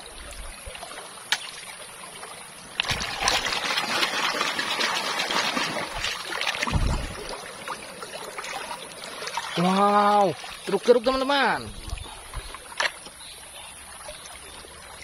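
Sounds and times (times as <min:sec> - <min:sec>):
stream water trickling: 0:00.0 - 0:15.0
vigorous splashing: 0:00.7 - 0:13.1
low thump: 0:06.6 - 0:07.3.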